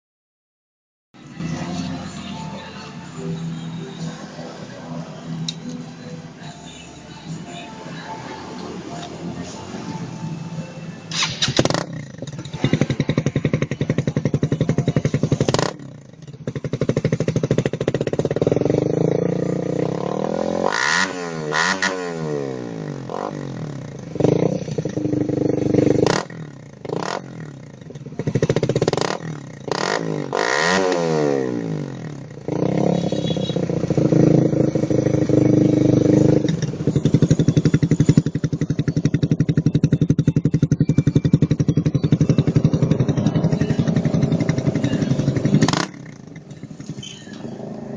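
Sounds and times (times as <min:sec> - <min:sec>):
motorcycle engine revving: 0:11.1 - 0:47.9.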